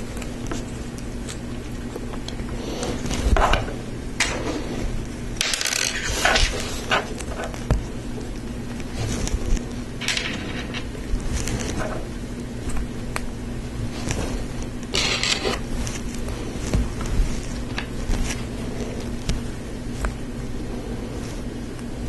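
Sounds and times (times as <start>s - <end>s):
steady low hum: 0.0s - 22.0s
plastic pieces clicking and scraping: 5.4s - 7.6s, 10.0s - 12.0s, 14.9s - 15.6s.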